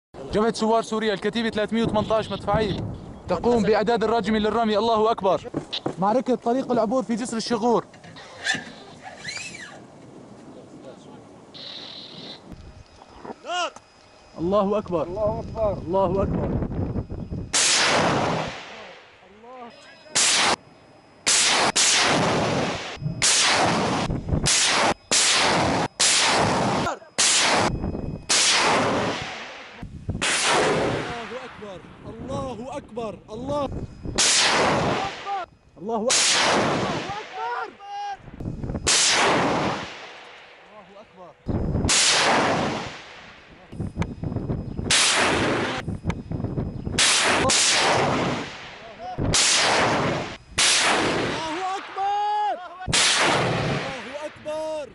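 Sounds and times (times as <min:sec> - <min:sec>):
rocket launch blasts: 0:17.5 - 0:18.9, 0:21.3 - 0:31.7, 0:34.2 - 0:35.3, 0:36.1 - 0:37.3, 0:38.8 - 0:40.2, 0:41.8 - 0:43.4, 0:44.9 - 0:45.8, 0:47.0 - 0:52.0, 0:52.9 - 0:54.3.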